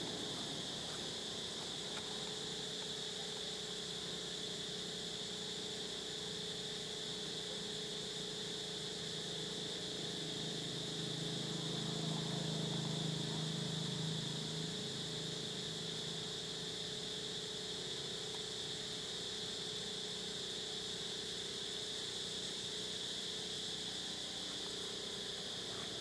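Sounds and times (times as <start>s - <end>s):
steady background hiss: 0.0s - 7.5s.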